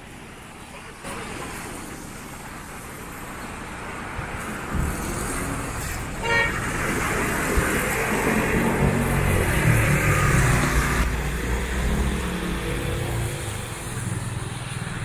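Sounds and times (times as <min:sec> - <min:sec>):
tyres hissing on wet road: 0:00.0 - 0:15.0
car horn toot: 0:06.2 - 0:06.6.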